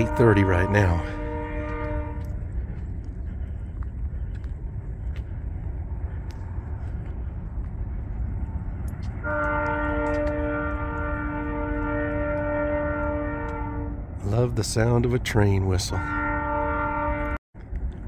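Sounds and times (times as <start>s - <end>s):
train horn chord: 0.0s - 2.8s, 9.2s - 14.4s, 15.6s - 17.4s
low rumble: 0.0s - 15.2s.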